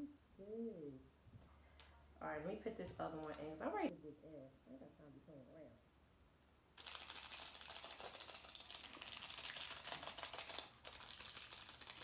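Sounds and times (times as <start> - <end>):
plastic sachet crinkling: 6.8 - 12.0.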